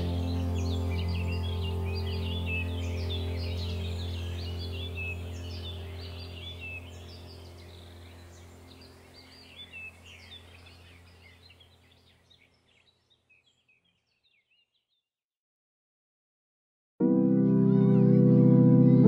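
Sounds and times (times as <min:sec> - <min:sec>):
low musical drone: 0:00.0 - 0:11.8, 0:17.0 - 0:19.0
songbirds chirping: 0:00.0 - 0:15.1.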